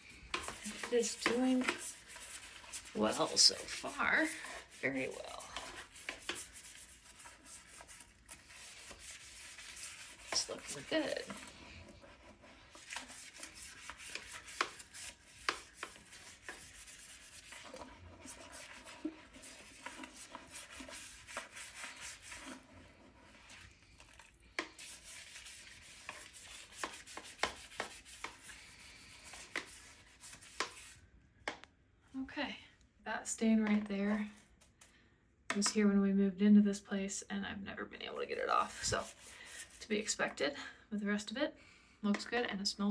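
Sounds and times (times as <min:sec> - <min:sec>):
toilet brush scrubbing bowl: 0:00.0 - 0:31.0, 0:38.3 - 0:40.4
brush tapping porcelain: 0:00.3 - 0:04.4, 0:05.1 - 0:11.5, 0:12.9 - 0:22.5, 0:24.6 - 0:28.5.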